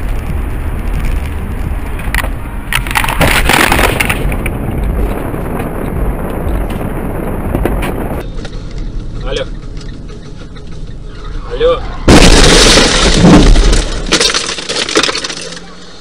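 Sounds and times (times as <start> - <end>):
road and cabin rumble: 0.0 - 14.1
car crash crunching and breaking: 2.1 - 5.7, 12.1 - 16.0.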